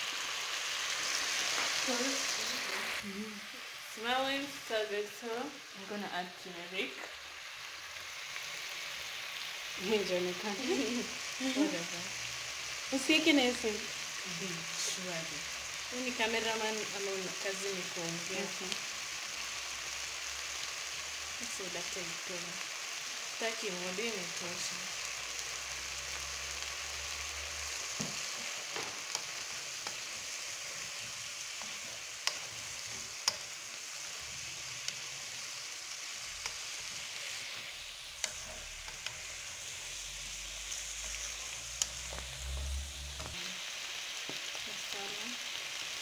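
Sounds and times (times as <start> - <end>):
chicken sizzling in a pot: 0.0 - 46.0
wooden spoon knocking on pan: 28.0 - 29.0.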